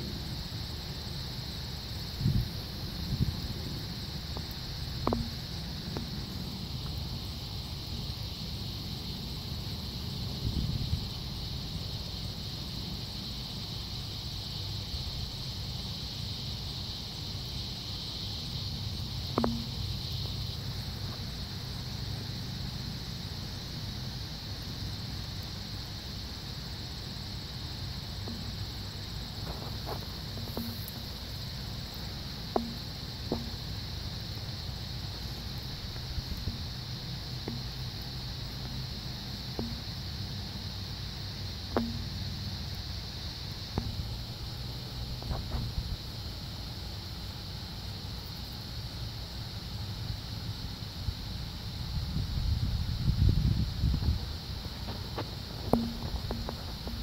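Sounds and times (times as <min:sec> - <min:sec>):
insects chirring: 0:00.0 - 0:57.0.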